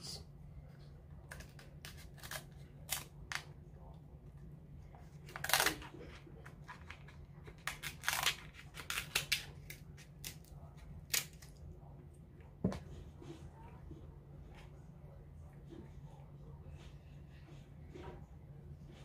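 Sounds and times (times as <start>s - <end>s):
shears cracking crab shell: 1.3s - 3.5s, 5.3s - 5.9s, 7.5s - 11.6s.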